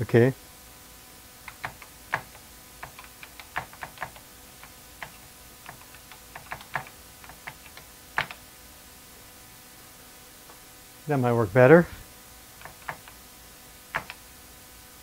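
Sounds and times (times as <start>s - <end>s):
computer keyboard typing: 1.4s - 8.4s, 12.6s - 13.2s, 13.9s - 14.2s.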